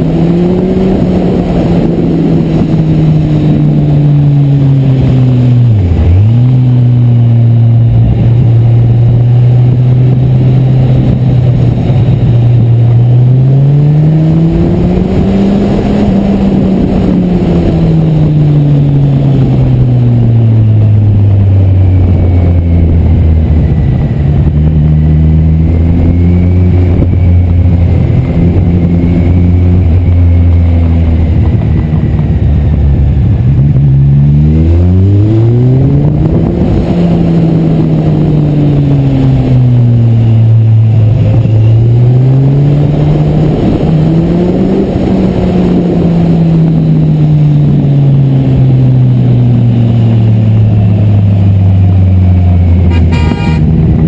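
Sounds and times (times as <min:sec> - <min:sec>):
motorcycle engine: 0:00.0 - 0:54.0
wind and road noise: 0:00.0 - 0:54.0.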